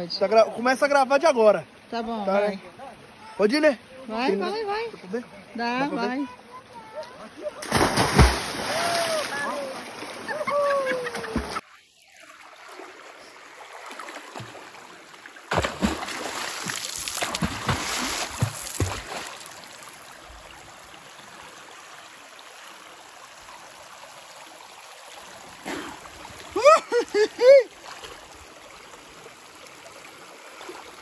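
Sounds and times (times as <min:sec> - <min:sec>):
water running over rocks: 0:00.6 - 0:31.0
swimmer splashing: 0:06.9 - 0:14.6, 0:15.5 - 0:19.6.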